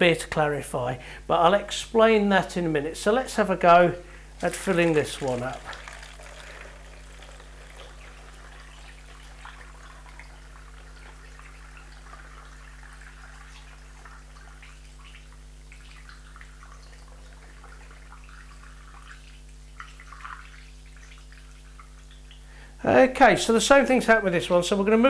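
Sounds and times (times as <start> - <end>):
low electrical hum: 0.0 - 25.0
beer trickling and fizzing: 4.1 - 22.5.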